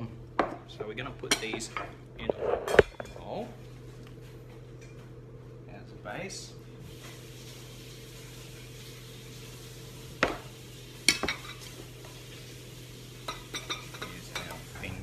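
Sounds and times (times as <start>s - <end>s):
steady low hum: 0.0s - 7.1s.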